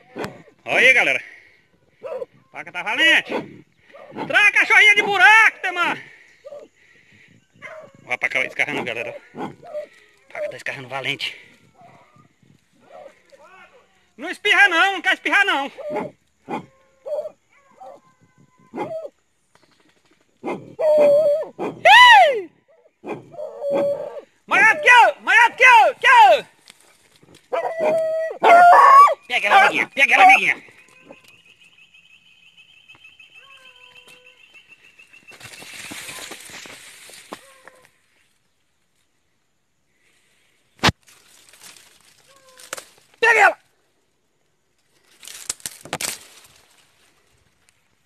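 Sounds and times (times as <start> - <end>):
dog yelping and howling: 9.4 - 10.6, 15.8 - 19.2, 20.4 - 25.6, 27.5 - 30.4
rustling scraping noise: 35.3 - 38.2.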